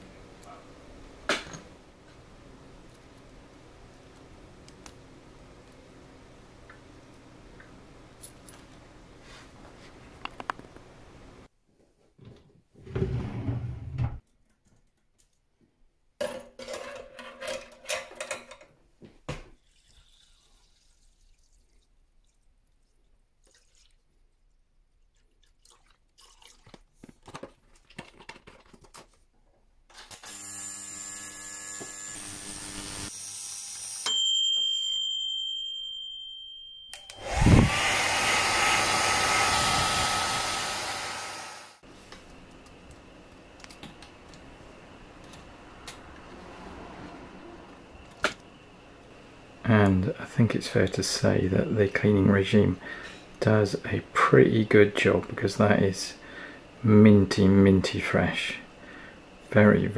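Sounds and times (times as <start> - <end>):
ultrasonic cleaner buzzing and whining: 30.1 - 34.2, 36.9 - 43.2
blower motor whining: 37.0 - 41.8.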